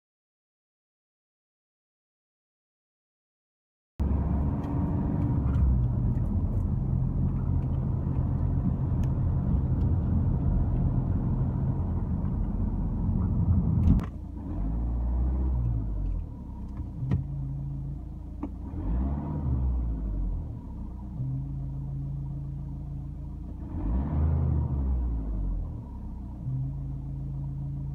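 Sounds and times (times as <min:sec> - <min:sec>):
car engine and road noise: 0:04.0 - 0:27.9.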